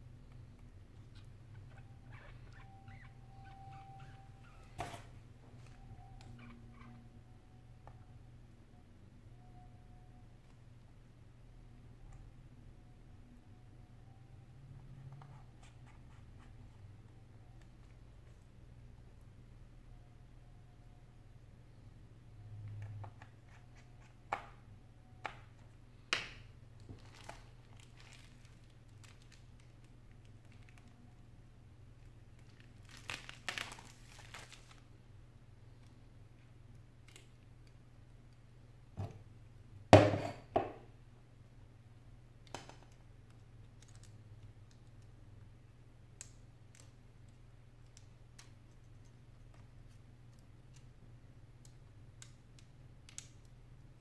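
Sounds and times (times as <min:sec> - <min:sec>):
faint low hum: 0:00.0 - 0:54.0
bubble-wrap crinkling: 0:26.8 - 0:31.2, 0:32.0 - 0:34.9.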